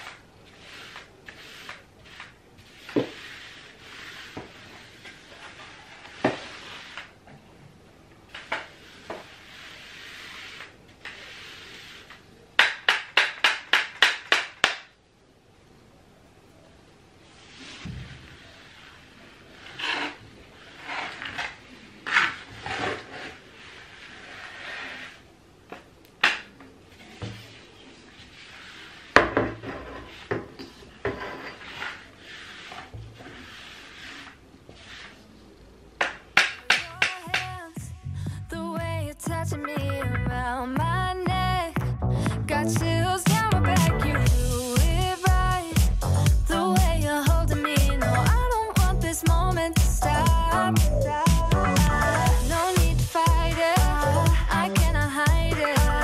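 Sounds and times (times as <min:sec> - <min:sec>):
soft rubbing on floor: 0:00.0 - 0:07.2, 0:08.3 - 0:12.3, 0:17.2 - 0:25.3, 0:26.9 - 0:35.8
sharp cleaning strokes: 0:08.8 - 0:12.1.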